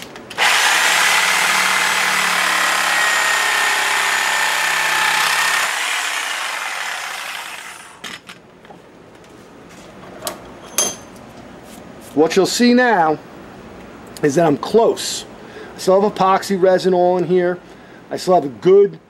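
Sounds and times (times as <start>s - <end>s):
reciprocating saw cutting wood: 0.4s - 8.0s.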